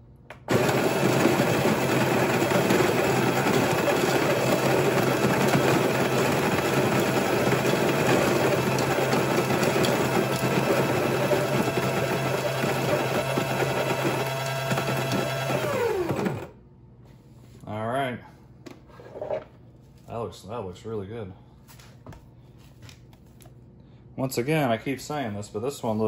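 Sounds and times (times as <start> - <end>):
coffee grinder grinding beans: 0.4 - 16.5.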